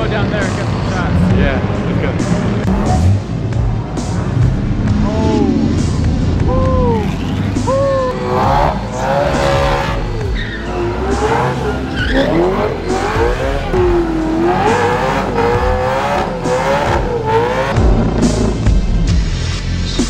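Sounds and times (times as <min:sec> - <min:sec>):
car engine revving: 0:00.0 - 0:20.0
tyre squeal: 0:09.7 - 0:12.5.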